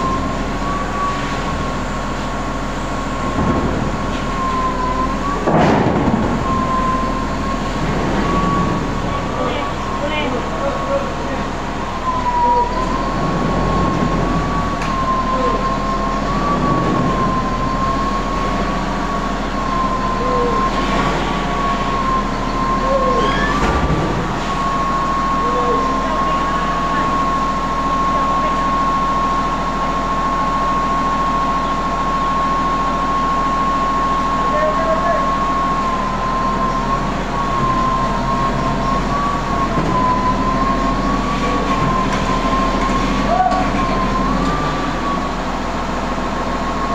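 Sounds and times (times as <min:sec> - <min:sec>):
crane high whine: 0:00.0 - 0:46.9
low engine hum: 0:00.0 - 0:46.9
short squeaks: 0:23.1 - 0:23.8.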